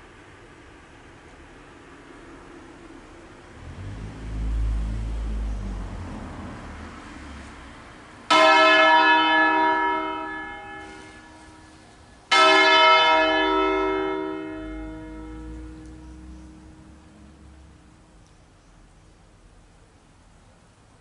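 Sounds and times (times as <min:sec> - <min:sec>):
church bell tolling: 0:08.3 - 0:17.1.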